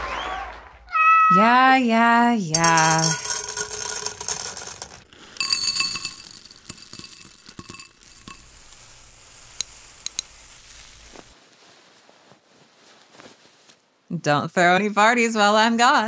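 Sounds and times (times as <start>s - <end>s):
kibble clinking against bowl: 2.6s - 11.1s
cat food kibble pouring into bowl: 2.6s - 11.3s.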